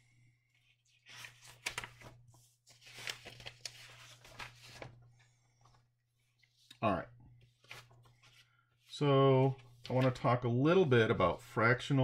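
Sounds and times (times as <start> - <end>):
paper rustling and scraping: 0.6 - 5.1, 7.4 - 10.4.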